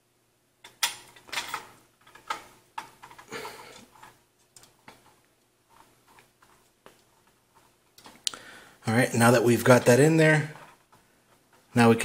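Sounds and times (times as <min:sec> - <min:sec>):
metal clicks knocks and scrapes: 0:00.6 - 0:08.2.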